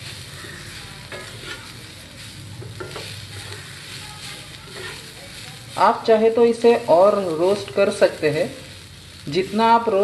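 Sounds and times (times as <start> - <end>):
spatula scraping a pan: 0.0 - 5.9
corn kernels sizzling in oil: 0.0 - 10.0.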